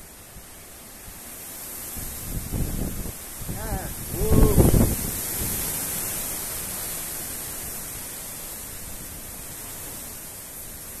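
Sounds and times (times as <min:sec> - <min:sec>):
strong wind hissing: 0:01.6 - 0:07.9.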